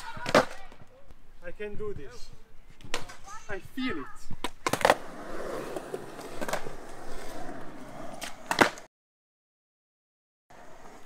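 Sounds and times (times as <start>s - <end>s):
skateboard clacking on ground: 0.0s - 1.0s, 2.8s - 3.5s, 4.4s - 7.3s, 8.1s - 8.9s
skateboard wheels rolling on concrete: 0.0s - 8.9s, 10.5s - 11.0s.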